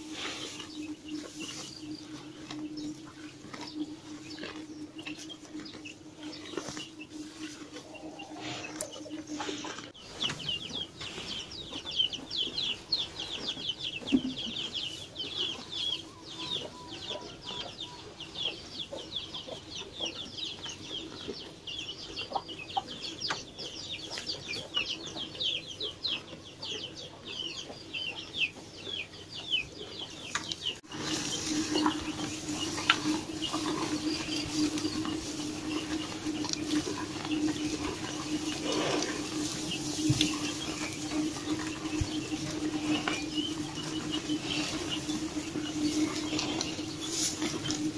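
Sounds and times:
cattle chewing hay: 0.0 - 11.4, 30.8 - 47.9
birds chirping: 0.0 - 47.9
steady low hum: 30.8 - 47.9.

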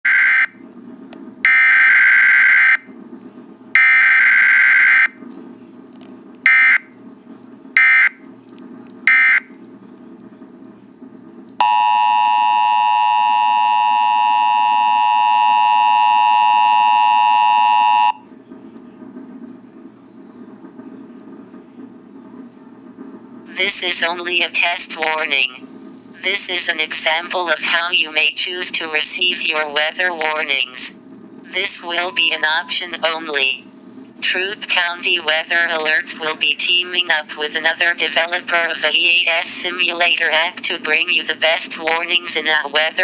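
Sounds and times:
two-tone attention signal: 11.6 - 18.2, 32.0 - 32.8.

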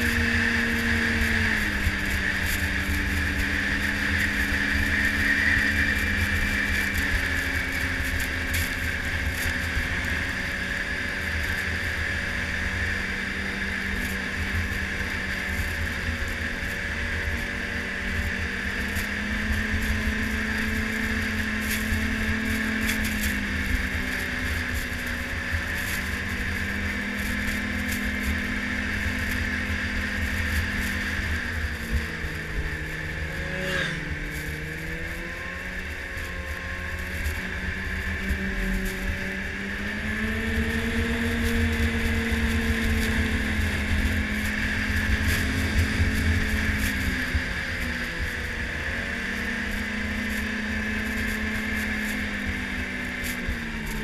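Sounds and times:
snowmobile engine droning: 0.0 - 54.0.

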